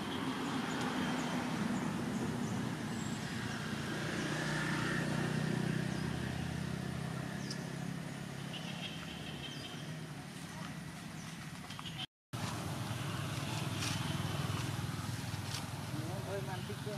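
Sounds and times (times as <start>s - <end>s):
vehicle engine passing by: 0.4s - 9.1s.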